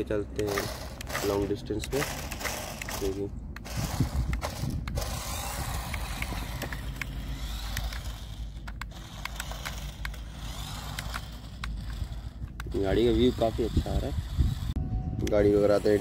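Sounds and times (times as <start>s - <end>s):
steady low rumble: 0.0s - 15.8s
wheels running on concrete: 0.2s - 14.8s
toy car electric motors: 0.2s - 16.0s.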